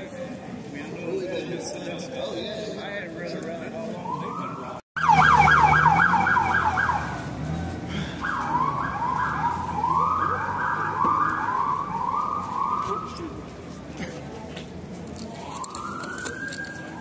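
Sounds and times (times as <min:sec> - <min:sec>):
ambulance siren yelping: 0:03.9 - 0:13.4, 0:15.4 - 0:17.0.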